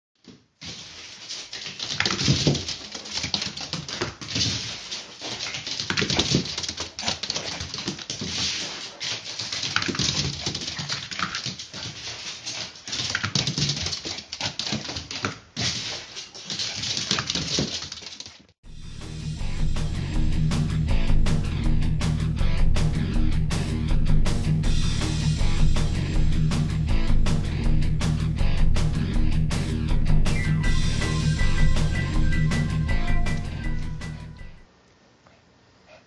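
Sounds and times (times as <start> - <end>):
dog claws clattering on wooden floor: 1.5 - 18.4.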